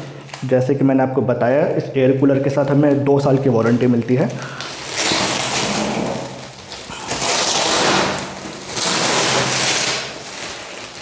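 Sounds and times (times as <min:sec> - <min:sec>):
plastic bag crinkling: 0:02.6 - 0:11.0.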